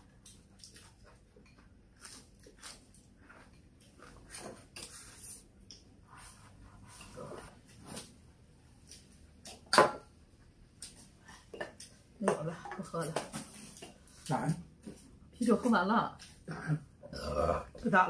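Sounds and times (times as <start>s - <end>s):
chewing: 0.2s - 4.4s.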